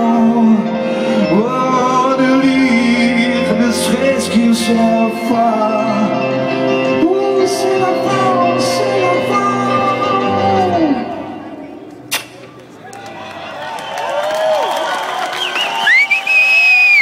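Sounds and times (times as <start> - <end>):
person singing: 0.0 - 11.8
live rock band: 0.0 - 12.3.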